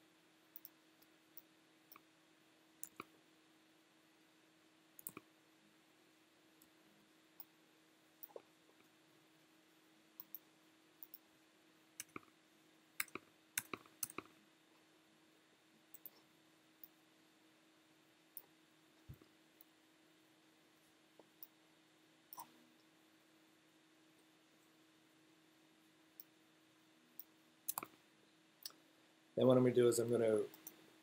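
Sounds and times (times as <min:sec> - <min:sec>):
faint steady hum: 0:00.0 - 0:31.0
mouse and keyboard clicks: 0:02.8 - 0:03.1, 0:05.0 - 0:05.3, 0:13.0 - 0:14.3, 0:22.3 - 0:22.5, 0:27.2 - 0:28.0.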